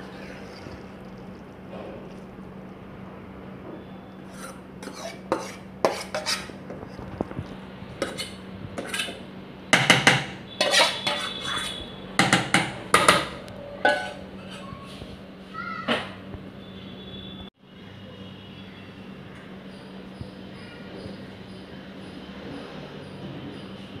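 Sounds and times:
steel spoon scraping steel bowl: 4.2s - 6.6s, 8.0s - 9.2s, 10.5s - 14.7s.

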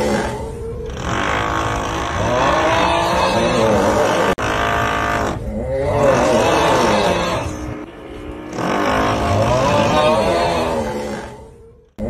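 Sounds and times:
groaning snore: 0.0s - 12.0s
drill noise: 4.0s - 5.4s.

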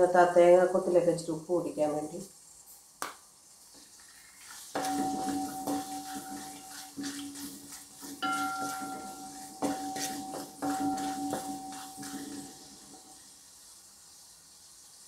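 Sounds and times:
coconut sizzling in oil: 0.0s - 15.0s
two-note ringing hum from pan: 4.8s - 13.2s.

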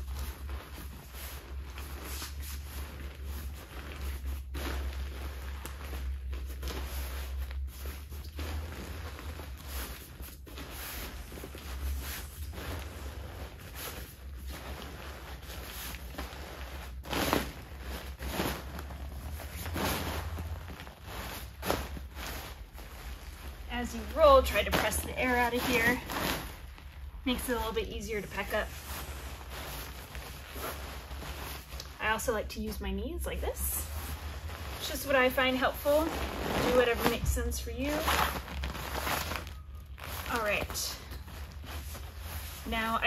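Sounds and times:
fabric rustling: 0.0s - 43.0s.

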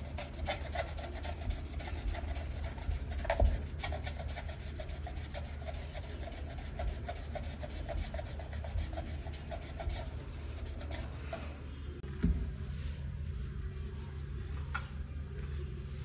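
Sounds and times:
pad scrubbing steel plate: 0.0s - 11.3s.

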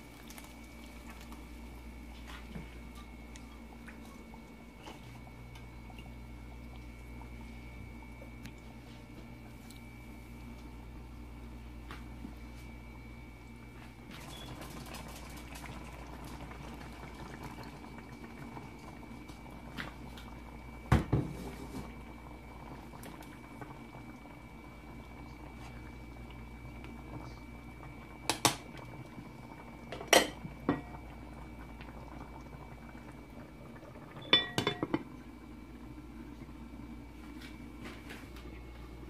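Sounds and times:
food bubbling in frying pan: 0.0s - 39.0s
glass lid clinking on pan: 34.2s - 35.0s.

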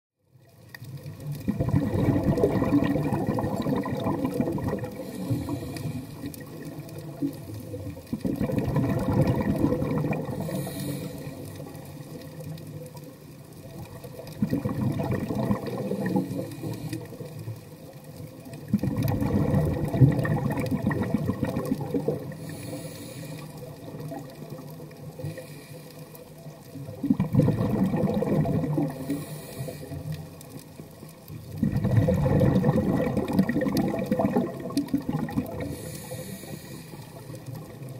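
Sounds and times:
underwater exhaled bubbles rushing: 0.4s - 37.9s
faint hiss of inhaling: 5.0s - 6.6s, 10.3s - 12.4s, 16.2s - 17.4s, 22.3s - 23.8s, 25.2s - 26.4s, 28.9s - 30.4s, 35.6s - 37.6s.

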